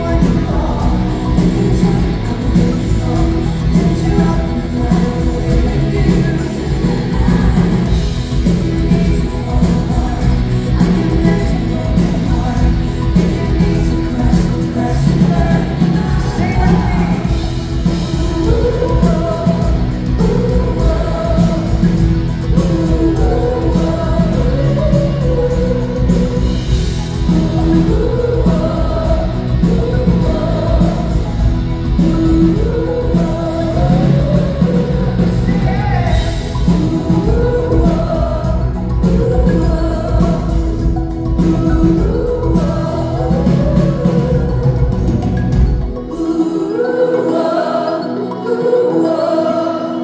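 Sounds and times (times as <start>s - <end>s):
live pop band playing: 0.0s - 50.0s
man singing: 0.0s - 50.0s.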